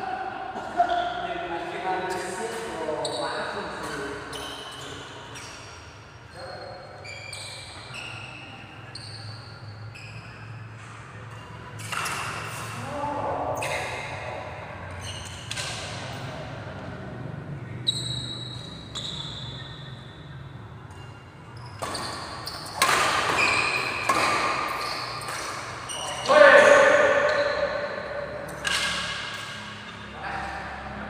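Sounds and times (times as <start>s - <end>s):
rackets hitting shuttlecock: 10.8s - 12.8s, 20.9s - 30.7s.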